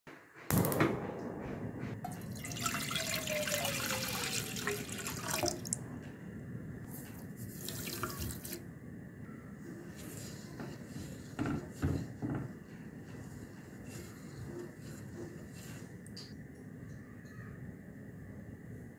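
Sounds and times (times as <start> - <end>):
milk pouring into saucepan: 2.1 - 5.8.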